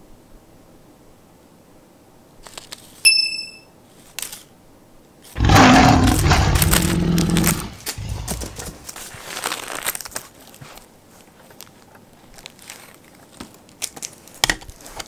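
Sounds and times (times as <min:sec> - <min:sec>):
short bright ding: 0:03.1 - 0:03.7
loud rough rumbling: 0:05.4 - 0:08.9.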